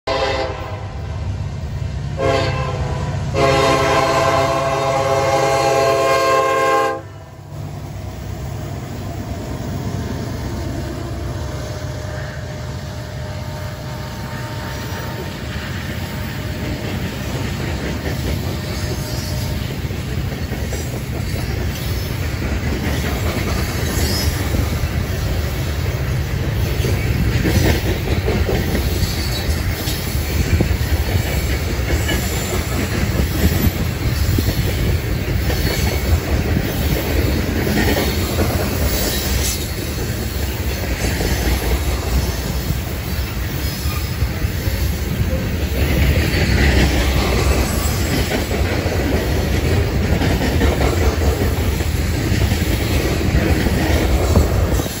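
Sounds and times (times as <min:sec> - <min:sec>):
locomotive air horn: 0:00.0 - 0:01.0, 0:02.2 - 0:07.3, 0:11.4 - 0:16.5
diesel locomotive rumble: 0:00.1 - 0:55.0
train wheels clattering on rails: 0:07.5 - 0:55.0.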